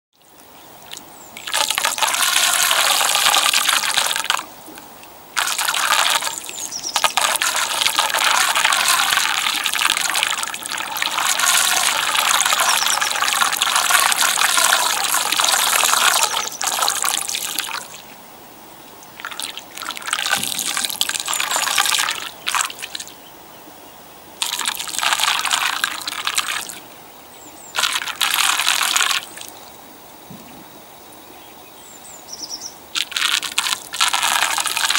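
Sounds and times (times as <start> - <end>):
water gurgling down a drain: 1.4 - 4.4, 5.4 - 18.0, 19.2 - 23.0, 24.4 - 26.8, 33.0 - 34.9.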